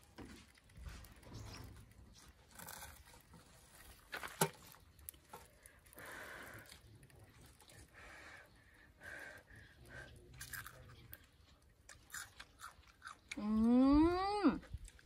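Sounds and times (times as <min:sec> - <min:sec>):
fried food tearing apart: 0:01.5 - 0:05.6, 0:10.4 - 0:11.3, 0:11.9 - 0:13.4.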